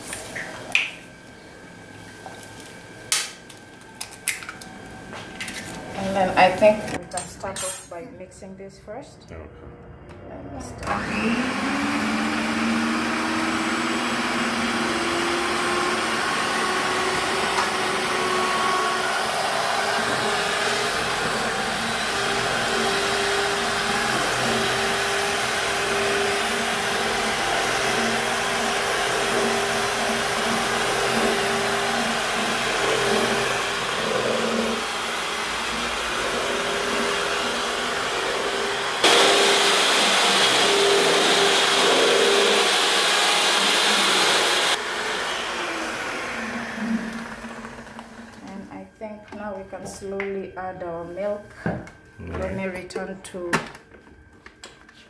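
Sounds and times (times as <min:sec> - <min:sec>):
electric hand mixer whining: 0:10.8 - 0:48.7.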